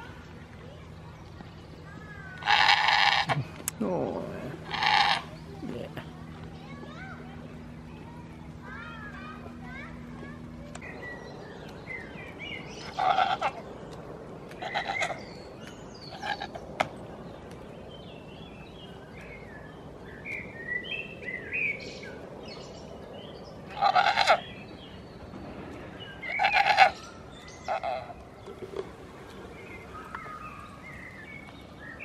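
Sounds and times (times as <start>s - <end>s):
goats bleating: 2.4s - 3.5s, 4.6s - 5.3s, 12.8s - 13.6s.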